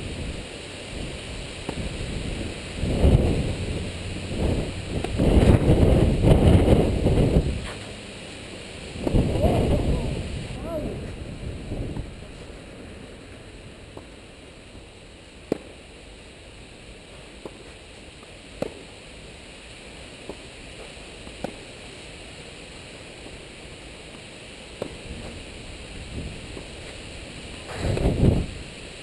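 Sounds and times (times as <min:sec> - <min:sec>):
background hiss: 0:00.0 - 0:29.0
tennis ball struck with rackets: 0:15.4 - 0:15.7, 0:18.6 - 0:18.8, 0:24.8 - 0:25.3.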